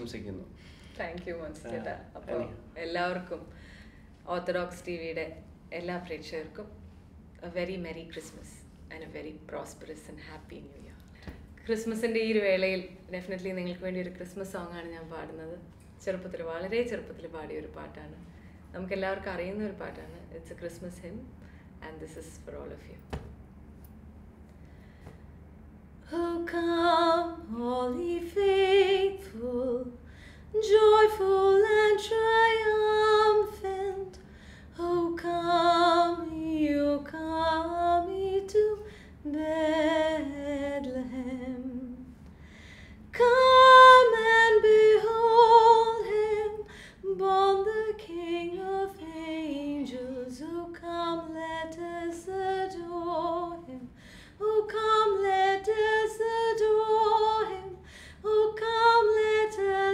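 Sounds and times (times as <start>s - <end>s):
woman singing hymn unaccompanied: 26.1s - 34.2s, 34.8s - 42.1s, 43.1s - 59.9s.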